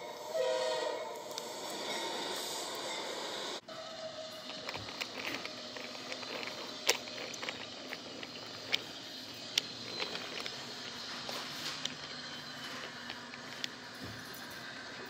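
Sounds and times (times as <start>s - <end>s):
toy train rolling on wooden track: 3.6s - 15.0s
wheels clicking on track: 3.6s - 15.0s.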